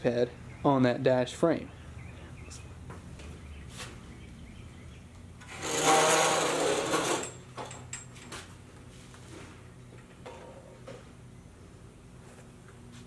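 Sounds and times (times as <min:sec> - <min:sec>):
metal frame rattling and scraping: 0:05.4 - 0:08.5.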